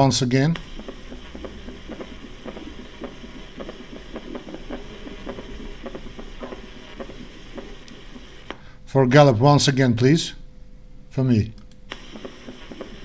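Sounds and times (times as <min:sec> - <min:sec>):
steady low hum: 0:00.0 - 0:13.0
heartbeat dull thuds: 0:00.6 - 0:08.5, 0:12.0 - 0:13.0.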